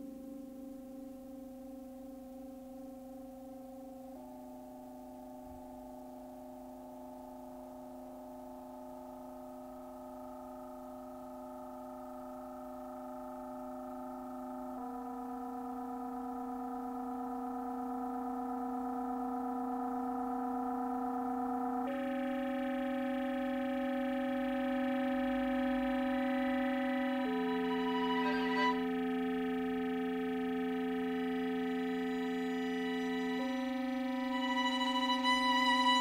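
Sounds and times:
electronic chord of pure tones: 20.8 - 36.0.

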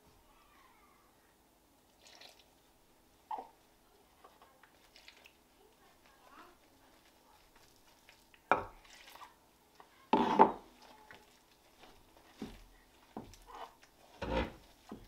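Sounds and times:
dough mixed by hand in bowl: 3.3 - 15.0.

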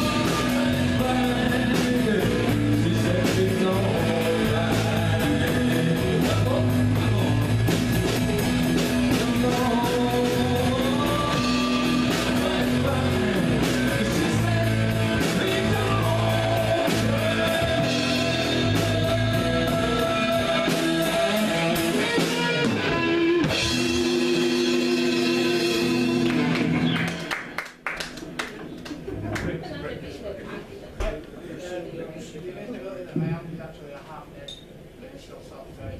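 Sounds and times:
person singing: 0.0 - 26.6
drum kit: 0.0 - 27.6
electric guitars: 0.0 - 27.6.

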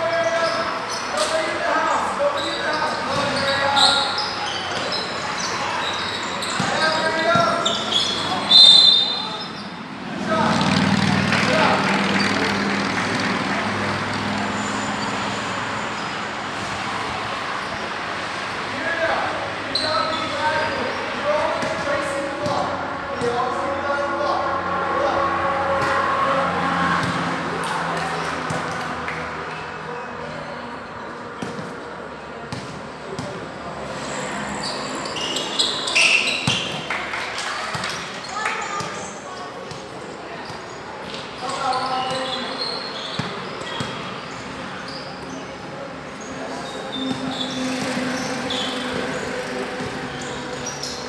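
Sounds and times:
steady traffic rush: 0.0 - 51.0
sneakers squeaking on court: 0.2 - 1.6, 2.3 - 9.8, 14.2 - 16.7, 17.4 - 18.0, 19.7 - 23.4, 29.5 - 36.9, 37.7 - 51.0
passing vehicle engine drone: 10.1 - 17.3, 24.3 - 29.9
basketball bouncing on court: 31.4 - 31.8, 32.5 - 33.4, 36.3 - 36.8, 43.1 - 44.3.

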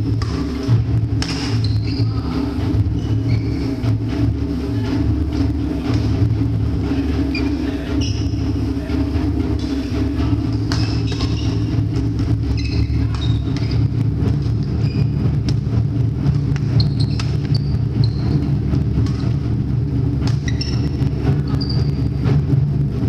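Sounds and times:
low rumble of hall: 0.0 - 23.0
racket striking shuttlecock: 0.1 - 0.6, 1.2 - 1.6, 10.6 - 12.3, 16.3 - 17.5, 19.0 - 19.4
shoe squeaks on wooden floor: 1.5 - 2.2, 3.0 - 3.7, 7.3 - 8.4, 10.9 - 11.7, 12.5 - 13.8, 14.6 - 15.2, 16.7 - 18.5, 20.4 - 22.1.

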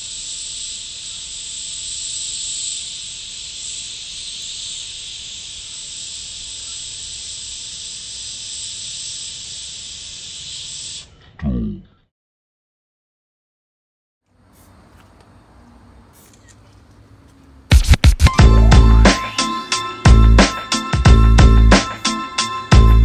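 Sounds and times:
spray paint cans hissing: 0.0 - 11.1, 14.4 - 15.2, 16.0 - 16.9, 17.7 - 21.0.

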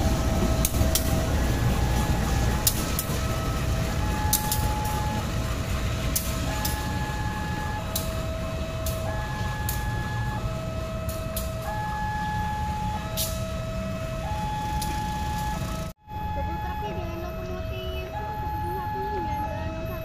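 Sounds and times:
wheels clicking over rail joints: 0.0 - 13.4
diesel locomotives rumbling: 0.0 - 20.0
two-tone crossing alarm: 0.0 - 20.0.

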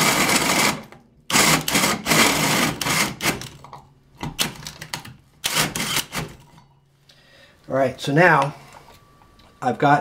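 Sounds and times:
drill cutting through plywood: 0.0 - 3.4, 5.4 - 6.3.

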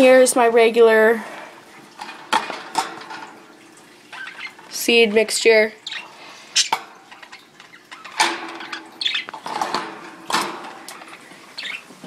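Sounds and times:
budgerigars chirping: 4.2 - 4.6, 5.8 - 6.8, 7.7 - 9.4, 11.6 - 11.9.

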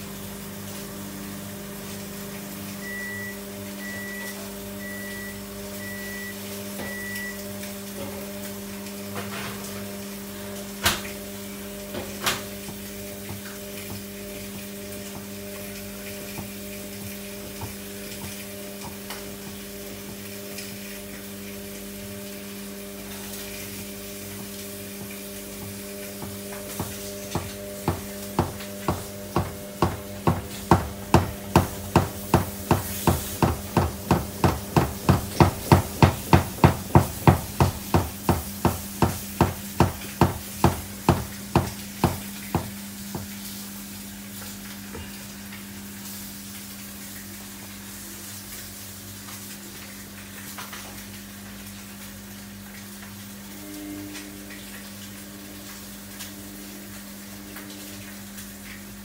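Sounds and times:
washing machine motor hum: 0.0 - 59.0
washing machine drum knocking: 11.8 - 20.3, 23.8 - 43.4.

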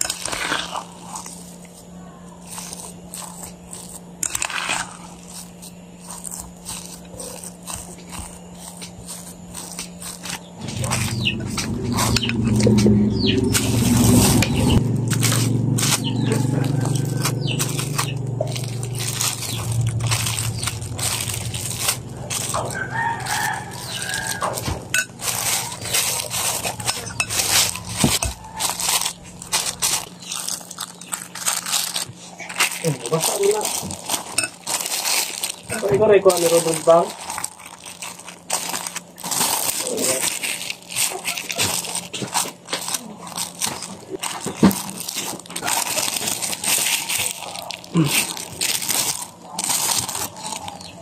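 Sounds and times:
spoon scooping dough: 0.0 - 12.9
plastic bag crinkling: 0.0 - 51.0
fork mashing food in glass bowl: 2.4 - 12.9, 15.2 - 29.9.

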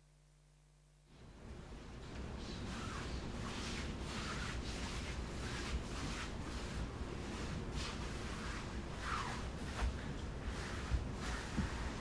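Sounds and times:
feet sliding on wooden floor: 2.6 - 12.0.

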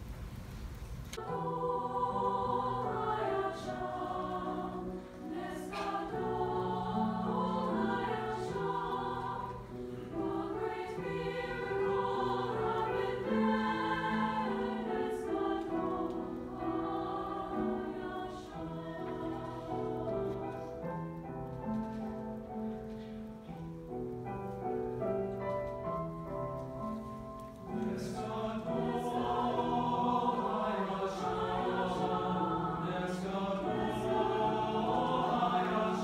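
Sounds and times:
mixed choir singing: 1.2 - 21.2, 27.6 - 36.0.

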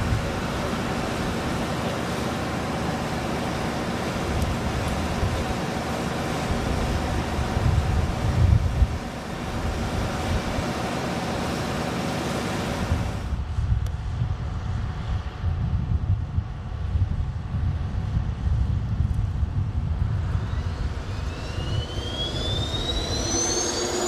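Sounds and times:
jet aircraft hiss and whine: 0.0 - 24.0
low rumble: 12.9 - 24.0.

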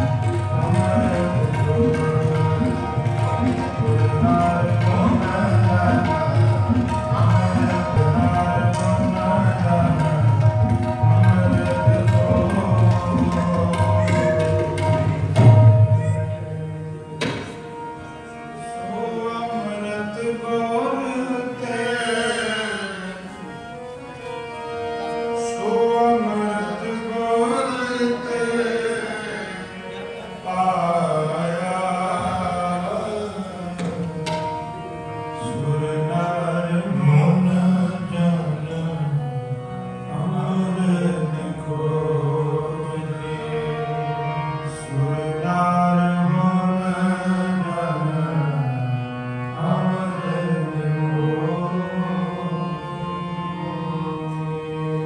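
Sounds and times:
harmonium sustained notes: 0.0 - 55.0
tabla: 0.0 - 55.0.

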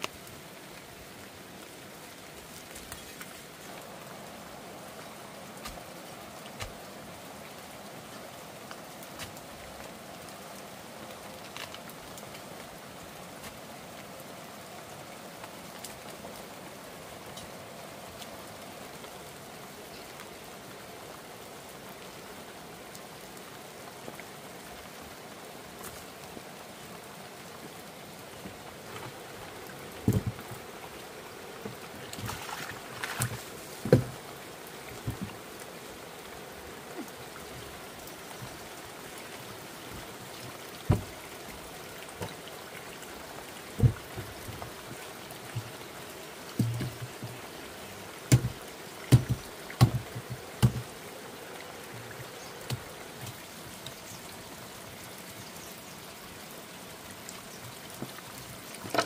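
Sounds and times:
steady rain falling: 0.0 - 59.0
sharp knocks and thumps: 30.0 - 30.6, 33.1 - 34.2, 40.9 - 41.2, 43.8 - 44.3, 48.3 - 50.9.

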